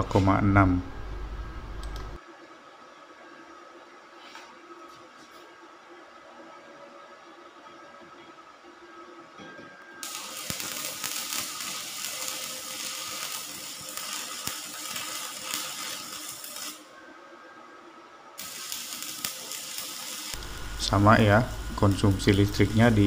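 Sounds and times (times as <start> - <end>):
welding arc burning: 10.0 - 17.0, 18.4 - 23.0.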